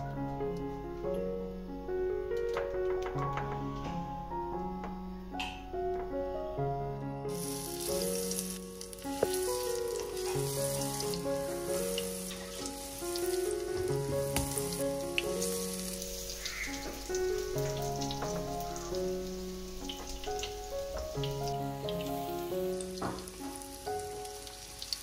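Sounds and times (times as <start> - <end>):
background piano music: 0.0 - 25.0
oil sizzling in a frying pan: 7.3 - 25.0.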